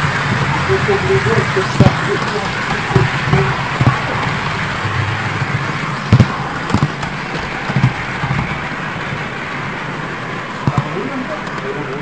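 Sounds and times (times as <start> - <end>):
model train rolling rumble: 0.0 - 12.0
sharp clicks and knocks: 1.8 - 8.7.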